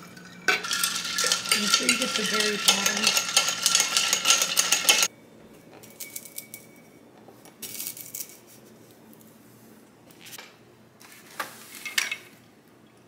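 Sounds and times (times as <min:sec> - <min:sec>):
spoon stirring ice in glass: 0:00.0 - 0:05.1.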